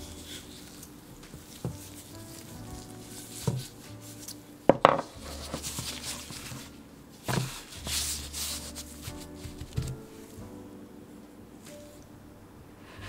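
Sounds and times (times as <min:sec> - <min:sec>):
rolling pin on dough: 0:00.0 - 0:10.2
dough sheet rustling: 0:00.0 - 0:10.4
wood knocking on wood: 0:04.7 - 0:05.2.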